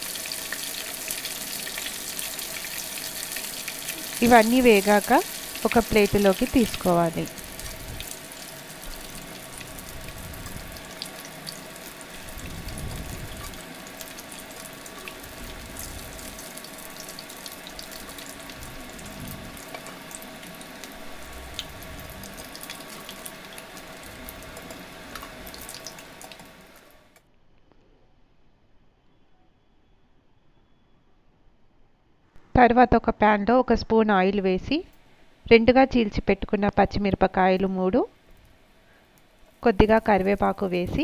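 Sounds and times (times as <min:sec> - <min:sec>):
food deep-frying in oil: 0:00.0 - 0:27.2, 0:38.6 - 0:41.0.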